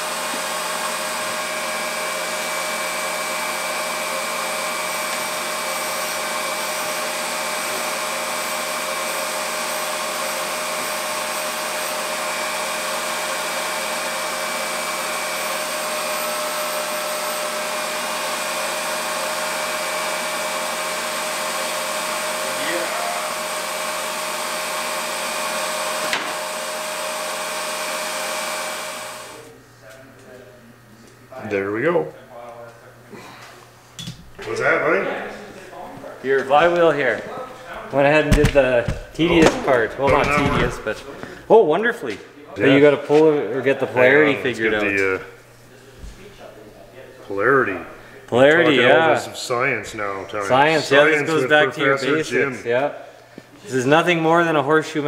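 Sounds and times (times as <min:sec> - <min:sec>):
valve grinder running: 0:00.0 - 0:29.6.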